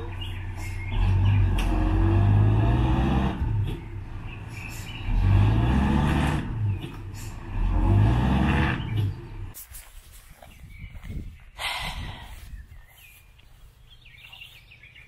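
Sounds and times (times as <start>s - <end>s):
truck engine revving hard: 0.8s - 9.6s.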